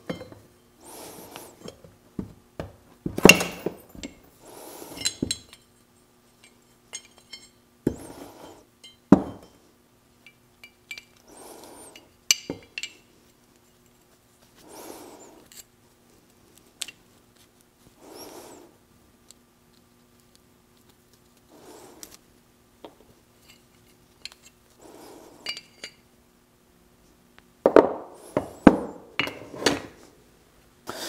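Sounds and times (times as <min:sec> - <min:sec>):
metal parts clinking and scraping: 0:04.8 - 0:05.7, 0:06.4 - 0:09.1, 0:23.4 - 0:24.6, 0:25.4 - 0:26.0.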